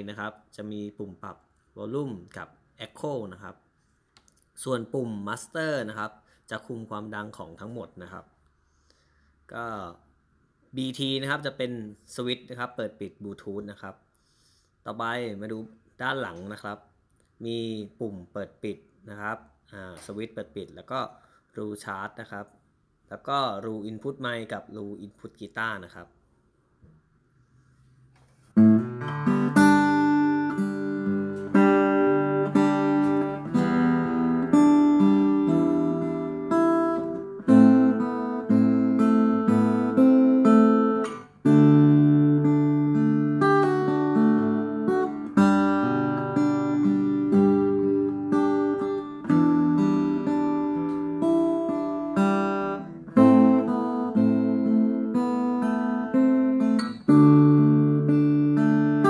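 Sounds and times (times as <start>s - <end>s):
acoustic guitar through amp: 28.0s - 59.0s.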